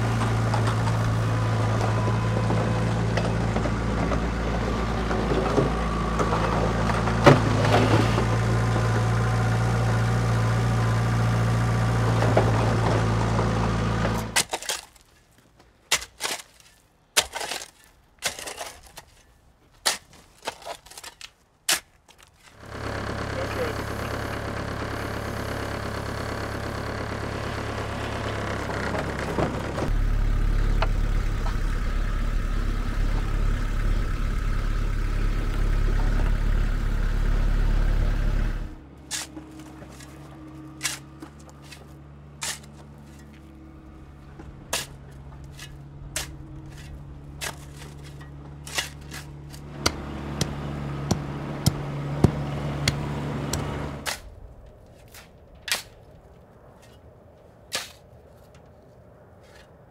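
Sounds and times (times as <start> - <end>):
small loader engine running: 0.0 - 14.4, 22.6 - 54.8
shovel scraping in dirt: 14.0 - 22.8, 39.0 - 43.7, 44.7 - 59.9.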